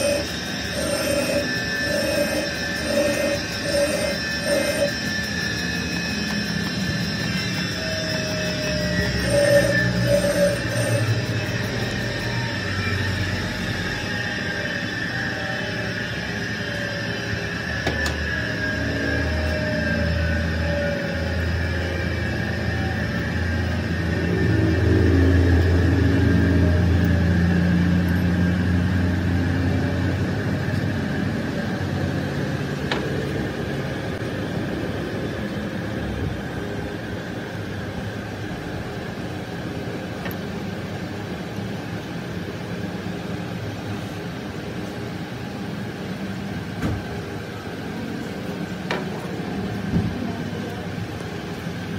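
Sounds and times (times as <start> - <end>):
lathe motor humming: 0.0 - 14.6.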